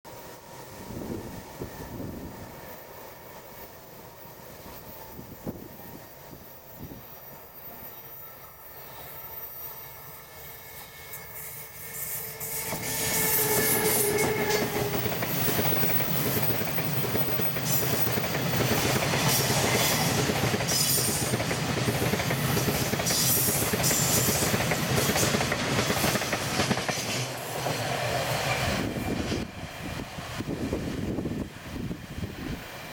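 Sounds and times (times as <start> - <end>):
electric locomotive whine: 0.1 - 32.9
wheel squeal: 6.8 - 10.0
clickety-clack over rail joints: 12.5 - 32.1
wheels rumbling on rails: 12.5 - 32.9.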